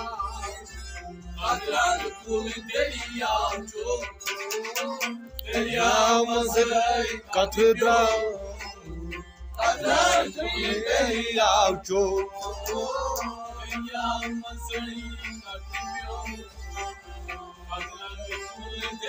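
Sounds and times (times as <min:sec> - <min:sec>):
man singing: 0:00.0 - 0:00.6, 0:01.4 - 0:04.2, 0:05.5 - 0:08.8, 0:09.6 - 0:16.4, 0:17.7 - 0:19.0
bowed string instruments: 0:00.0 - 0:19.0
harmonium: 0:00.0 - 0:19.0
low pulsing beat: 0:05.4 - 0:15.4.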